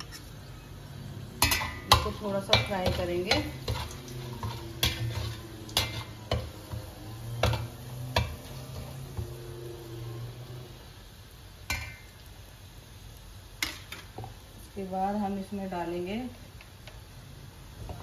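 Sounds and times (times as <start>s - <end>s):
spices sizzling in hot oil: 0.0s - 18.0s
metal spoon clinking on pot: 1.4s - 6.5s.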